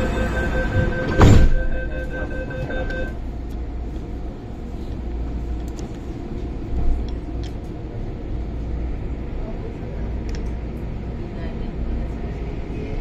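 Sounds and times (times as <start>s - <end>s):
train doors slamming shut: 0.0s - 3.1s
warning tone: 0.0s - 3.2s
train rumbling: 0.0s - 13.0s.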